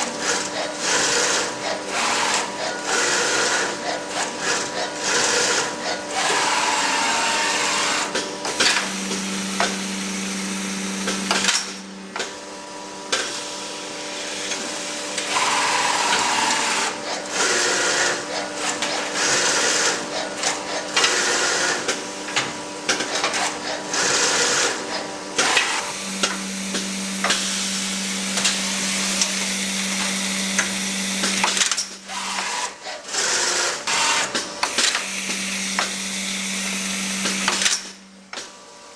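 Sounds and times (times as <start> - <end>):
machine motor hum: 24.0 - 38.9.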